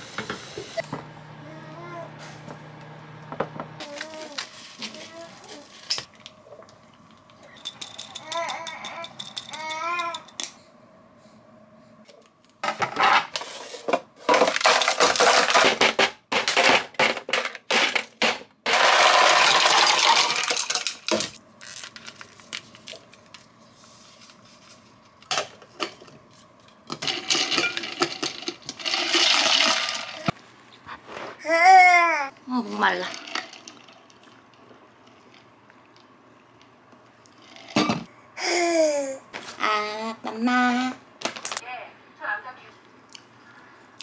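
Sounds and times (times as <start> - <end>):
ice cubes clattering into tumbler: 14.2 - 22.2, 27.0 - 30.3.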